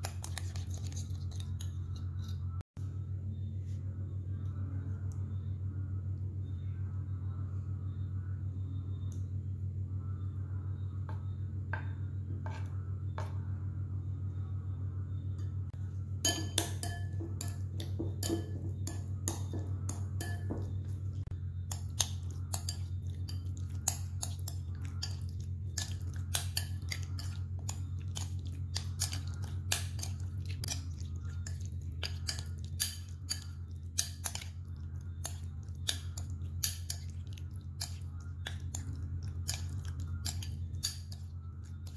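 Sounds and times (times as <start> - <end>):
steady low hum: 0.0 - 41.9
spoon clinking against ceramic bowl: 16.2 - 41.9.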